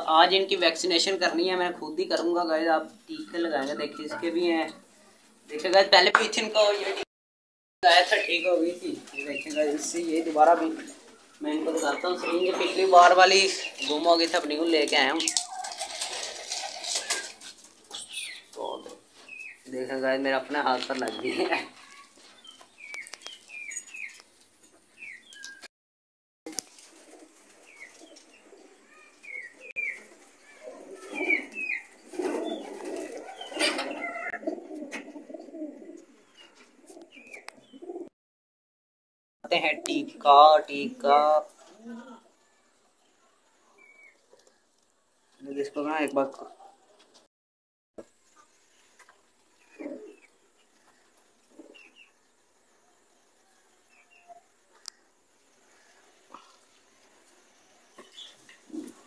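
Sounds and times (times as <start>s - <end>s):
small birds chirping: 0.0s - 7.0s, 7.8s - 25.7s, 26.5s - 38.1s, 39.5s - 47.3s, 48.0s - 59.0s
pigeons cooing: 8.0s - 19.7s, 26.7s - 38.1s, 49.1s - 52.2s, 54.2s - 59.0s
high bird chirps: 17.9s - 19.7s, 21.0s - 24.3s, 25.0s - 25.7s, 27.6s - 34.4s
faint pigeon coos: 26.9s - 38.1s, 41.6s - 42.6s, 49.6s - 52.1s, 55.6s - 56.8s, 58.0s - 59.0s.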